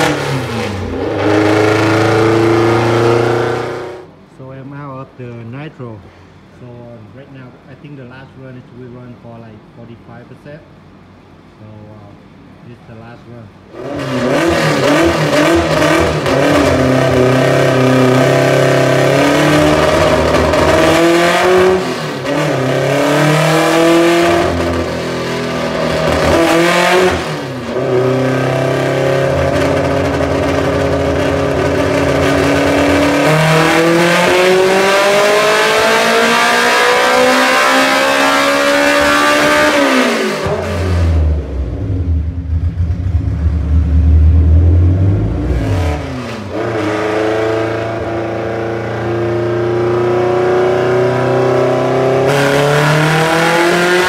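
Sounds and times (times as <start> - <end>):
car engine revving on dyno: 0.0 - 4.2, 13.7 - 54.0.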